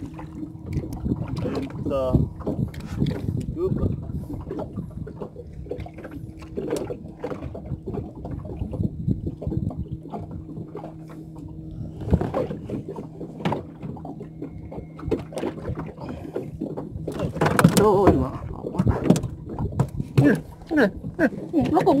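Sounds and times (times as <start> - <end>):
steady low hum: 0.0 - 22.0
water lapping at hull: 0.0 - 22.0
fish knocking against boat: 12.0 - 22.0.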